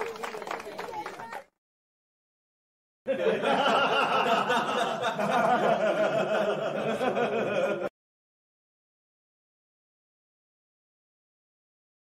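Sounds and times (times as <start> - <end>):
crowd laughing: 3.1 - 7.9.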